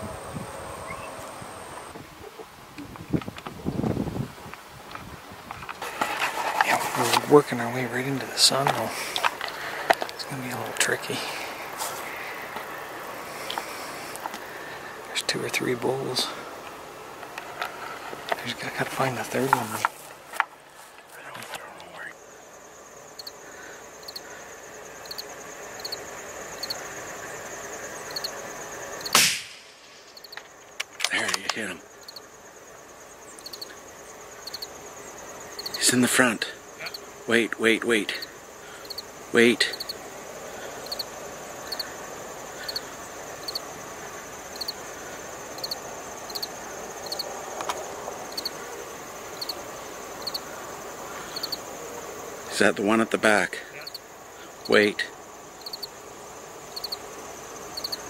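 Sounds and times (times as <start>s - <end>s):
steady high buzz: 0.0s - 2.0s
insects chirping: 0.0s - 58.0s
loud rifle shot: 29.1s - 30.0s.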